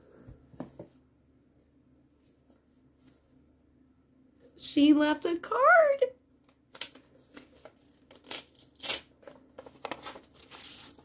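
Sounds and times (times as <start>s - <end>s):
paper envelope rustling: 6.7s - 11.0s.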